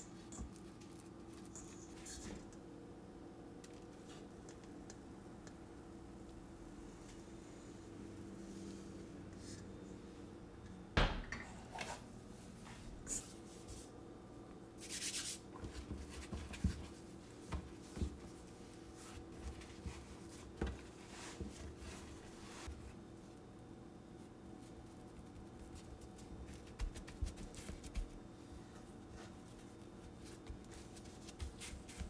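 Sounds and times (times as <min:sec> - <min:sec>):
hands patting and rubbing dough: 0:00.1 - 0:02.6, 0:14.8 - 0:23.5, 0:24.2 - 0:32.0.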